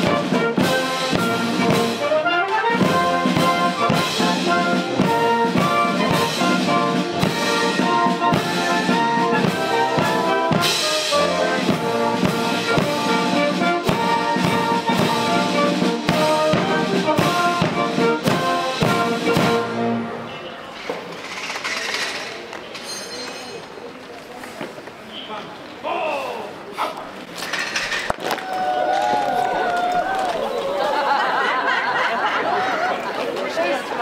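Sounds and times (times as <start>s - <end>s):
drums keeping the beat: 0.0s - 20.0s
brass band playing a march: 0.0s - 20.4s.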